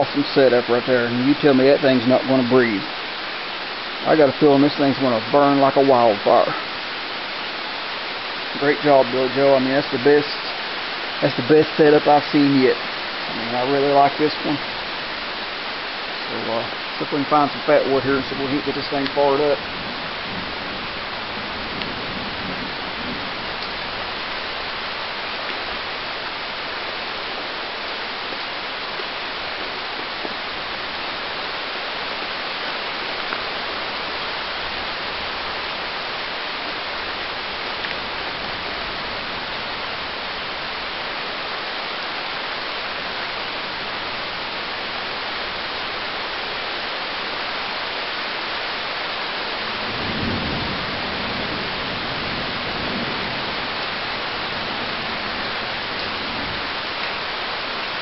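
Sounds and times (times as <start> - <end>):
heavy rain falling: 0.0 - 58.0
low rumble of thunder: 17.4 - 25.0, 49.5 - 57.5.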